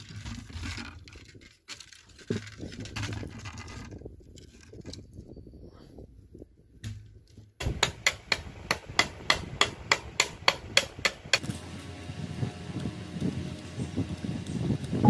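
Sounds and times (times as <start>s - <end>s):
knife chopping bamboo on a board: 7.6s - 11.4s.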